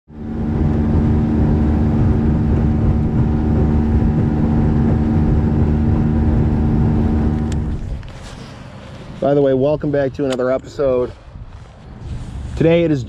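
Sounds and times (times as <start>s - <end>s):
boat motor running: 0.1s - 13.0s
water and wind rushing: 0.1s - 13.0s.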